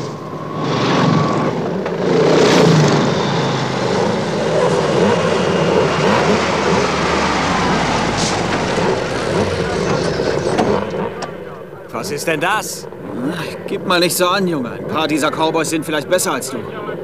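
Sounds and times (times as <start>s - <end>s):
off-road vehicle driving on grass: 0.0s - 11.7s
dirt bike engines revving: 0.0s - 17.0s.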